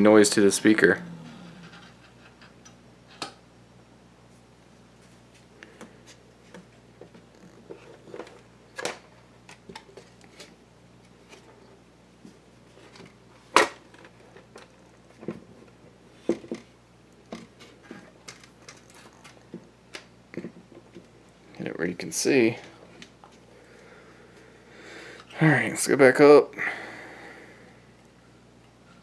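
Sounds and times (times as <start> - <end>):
faint amplifier hum: 0.0 - 29.0.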